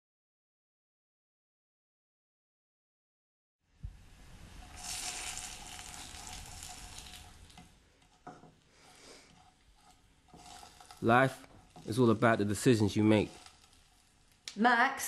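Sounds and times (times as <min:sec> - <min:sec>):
food sizzling in a frying pan: 0:03.8 - 0:15.0.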